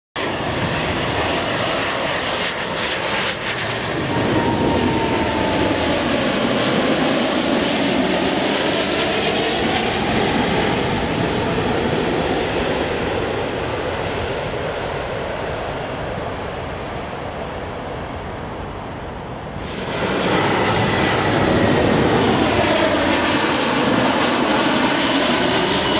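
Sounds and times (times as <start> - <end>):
faint engine whine: 0.2 - 25.9
jet engine roar: 0.2 - 25.9.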